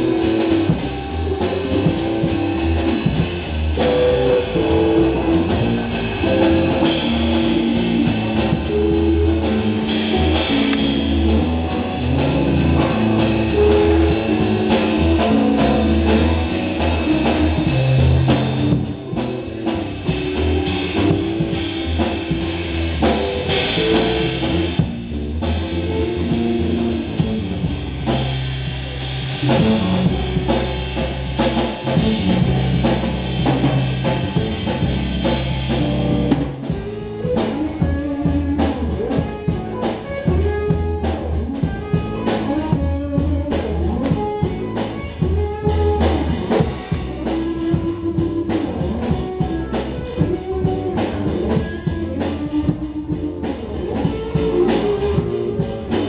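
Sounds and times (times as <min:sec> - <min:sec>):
bass guitar: 0:00.0 - 0:56.0
drum kit: 0:00.0 - 0:56.0
electric guitar: 0:00.0 - 0:56.0.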